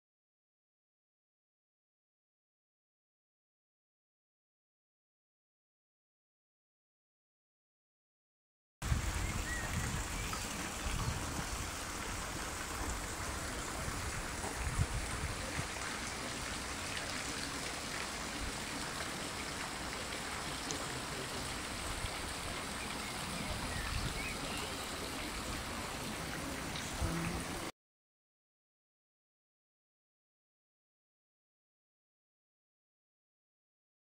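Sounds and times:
wind rumble on microphone: 8.8 - 12.3, 13.8 - 15.7, 23.4 - 24.2
fountain water splashing: 8.8 - 27.7.

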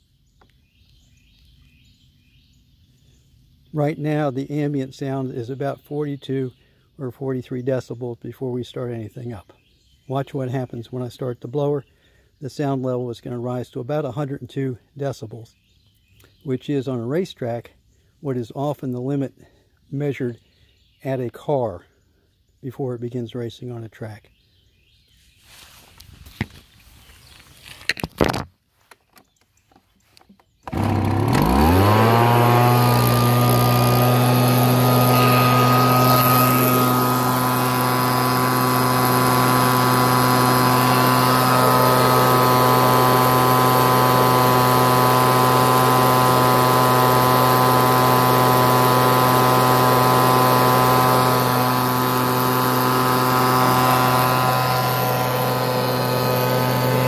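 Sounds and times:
leaf blower engine: 30.6 - 57.0.

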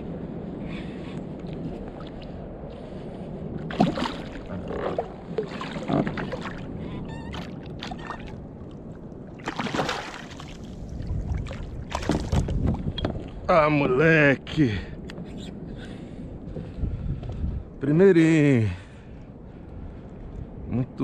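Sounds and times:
water splashing and sloshing: 1.3 - 13.5.

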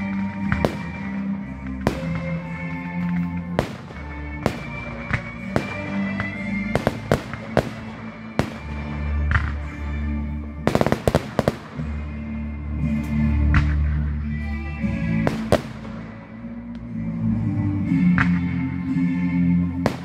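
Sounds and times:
fireworks bangs: 0.0 - 9.8, 10.6 - 12.0, 15.2 - 16.2
fireworks crackling: 0.0 - 10.0, 10.6 - 12.2, 15.2 - 16.5
music playing: 0.0 - 20.0.

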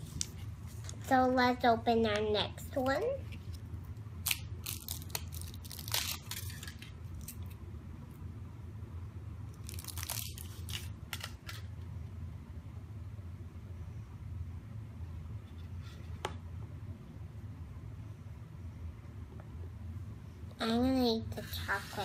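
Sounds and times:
foil wrapper crinkling and tearing: 4.2 - 7.5, 9.5 - 11.7.

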